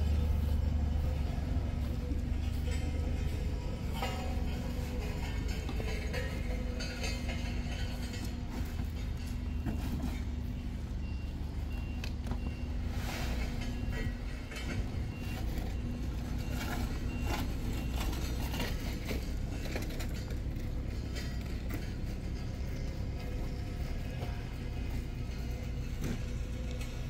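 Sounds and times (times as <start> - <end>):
construction vehicle engine running: 0.0 - 27.0
reversing alarm beeps: 8.0 - 20.3
rakes scraping asphalt: 12.8 - 22.7.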